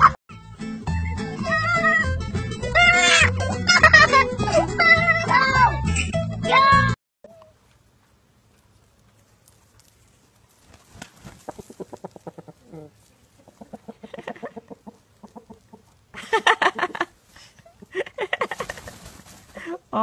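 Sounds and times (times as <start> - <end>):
chickens clucking: 11.2 - 16.1.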